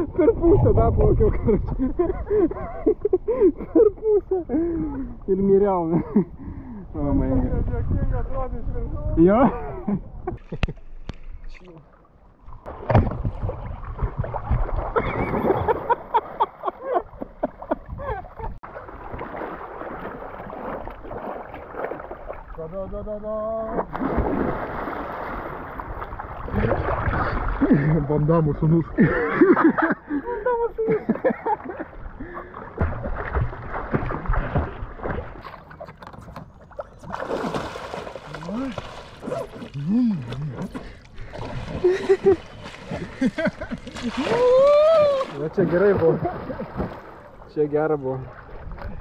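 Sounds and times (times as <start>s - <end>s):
wind: 0.0s - 49.0s
water splashing around paddleboard: 10.4s - 22.8s, 23.6s - 28.1s, 31.6s - 49.0s.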